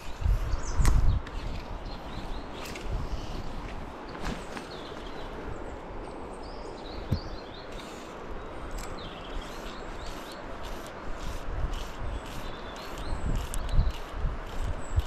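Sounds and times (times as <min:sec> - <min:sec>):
small bird chirping: 0:11.8 - 0:14.1.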